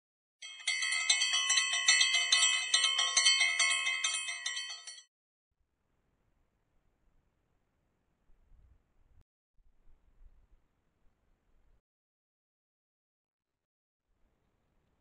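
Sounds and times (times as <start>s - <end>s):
high bells ringing: 0.4s - 5.0s.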